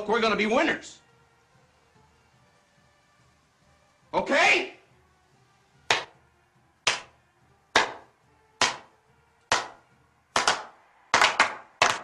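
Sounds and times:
hand clapping: 5.9 - 6.2, 6.8 - 7.1, 7.7 - 8.9, 9.5 - 12.0.

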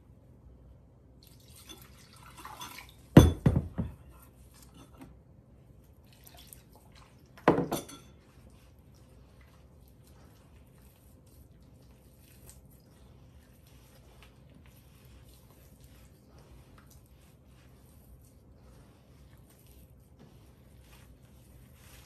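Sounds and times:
dough squishing and rustling: 1.3 - 22.0
metal bowl clanking: 7.5 - 8.3.

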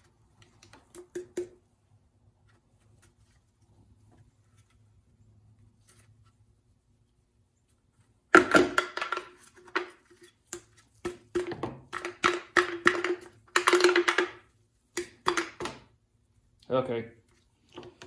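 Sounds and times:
plastic housing knocking and rattling: 11.1 - 14.4.

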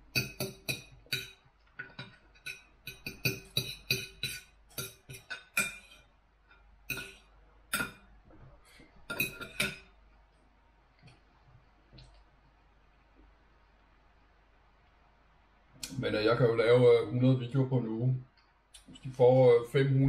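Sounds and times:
cutlery clinking on a plate: 0.1 - 6.1, 9.1 - 9.9.

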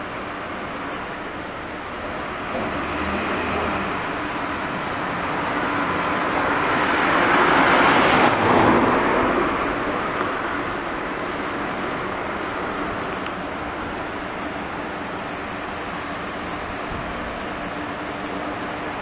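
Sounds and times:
motor vehicle passing: 2.1 - 11.1.

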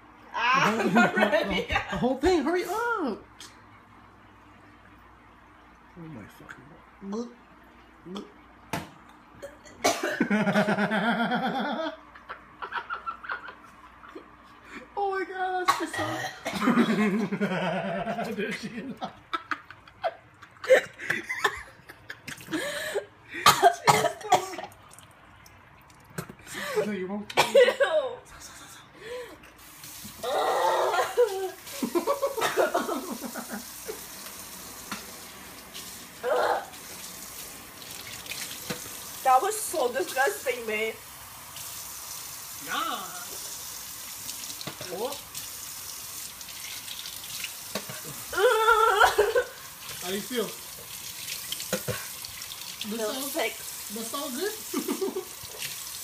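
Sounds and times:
person groaning: 30.2 - 31.2
person gagging: 30.2 - 31.6, 36.2 - 36.7, 48.0 - 49.6
person laughing loudly: 30.3 - 33.7, 48.1 - 49.6
tap running into sink: 34.2 - 35.2, 37.8 - 39.0, 44.6 - 44.9.

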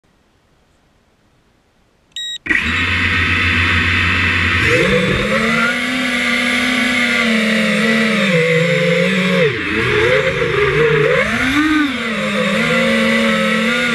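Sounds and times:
short electronic beep: 2.2 - 2.9
drone motors whining: 2.2 - 13.9.

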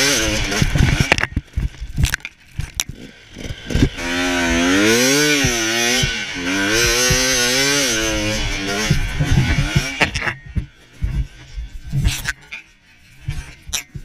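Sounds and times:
motocross bike engine revving: 0.0 - 12.4
engine knocks: 5.4 - 11.3
wind on microphone: 8.4 - 12.4.

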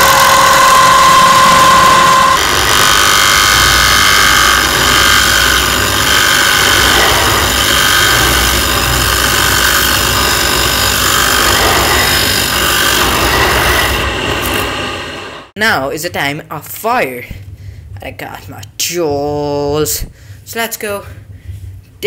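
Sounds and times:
bench grinder grinding plastic: 0.0 - 15.3.

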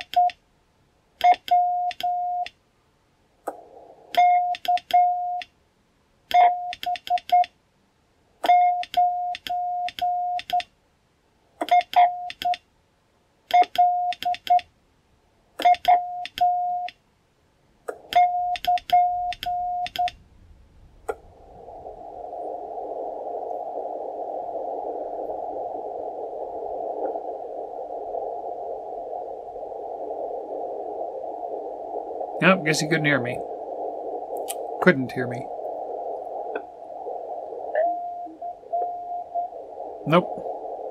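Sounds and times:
radio receiver hiss: 3.4 - 5.4, 17.9 - 40.9.

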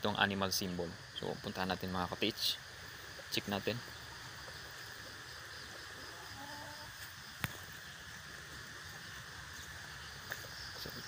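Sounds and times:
insect drone: 0.0 - 11.0.

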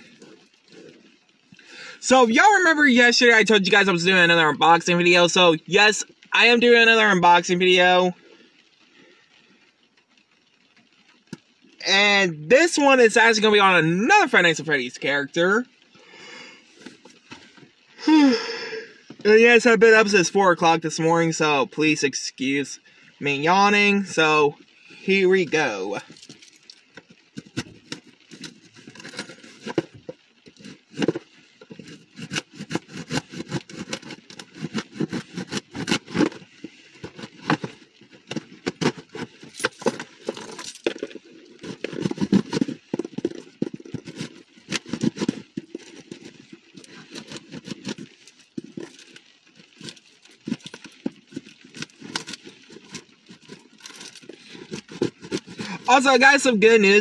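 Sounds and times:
packaging crinkling and tearing: 26.0 - 55.9.

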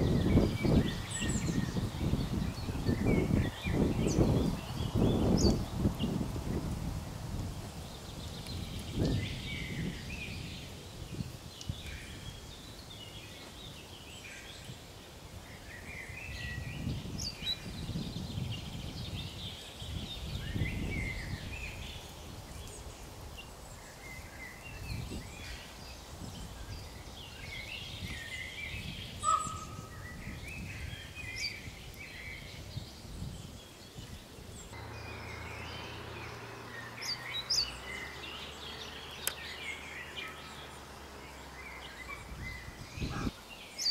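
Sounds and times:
songbirds chirping and trilling: 0.0 - 43.9
low rumbles: 34.7 - 43.3.

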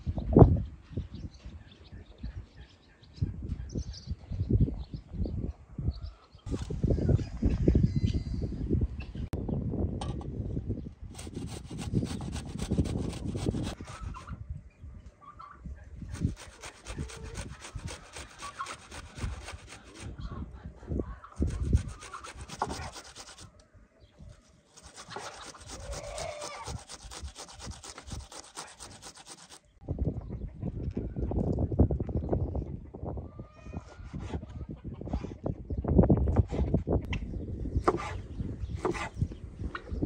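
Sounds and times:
potato grated on metal grater: 11.1 - 14.2, 16.1 - 20.1, 21.4 - 23.5, 24.7 - 29.6.

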